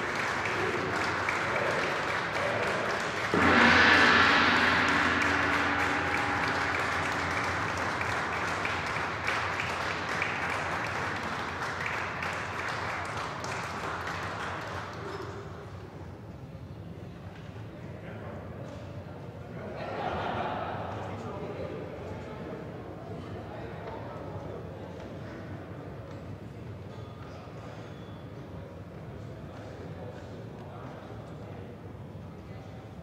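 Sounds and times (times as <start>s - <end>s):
applause: 0.0s - 3.4s, 5.2s - 15.4s
large gong ringing: 3.3s - 11.6s.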